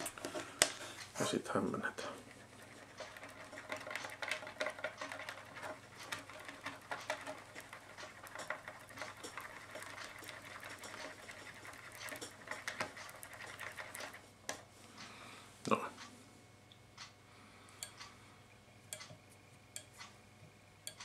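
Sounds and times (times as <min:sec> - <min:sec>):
epoxy stirring scraping and ticking: 0:01.8 - 0:14.2.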